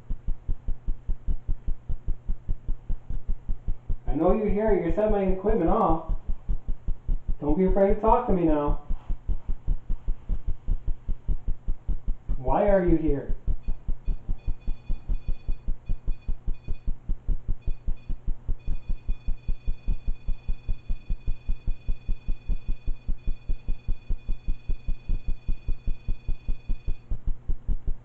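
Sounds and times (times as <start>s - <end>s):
fast low throbbing pulse: 0.0s - 28.0s
high electronic beeping tone: 13.6s - 17.0s, 17.6s - 27.1s.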